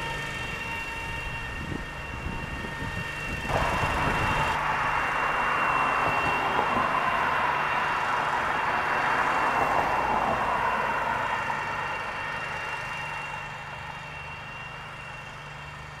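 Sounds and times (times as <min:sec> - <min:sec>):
mower engine running: 0:00.0 - 0:16.0.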